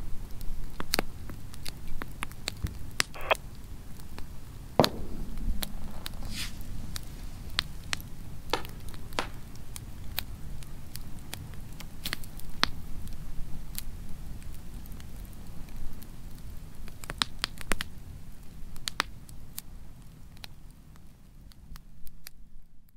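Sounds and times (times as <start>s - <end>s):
low steady fire rumble: 0.0s - 22.9s
campfire pops and crackles: 0.2s - 19.7s.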